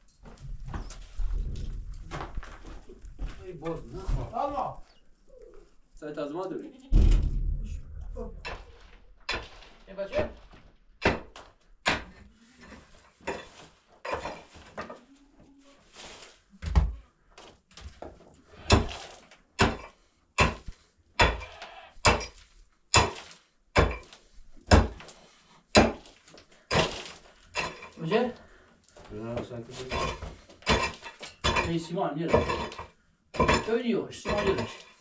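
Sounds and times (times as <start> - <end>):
rubble scraping: 0.3 - 4.9, 26.7 - 35.0
pickaxe striking stony ground: 9.3 - 10.4, 11.0 - 12.2, 18.6 - 25.1, 25.7 - 28.0, 29.8 - 35.0.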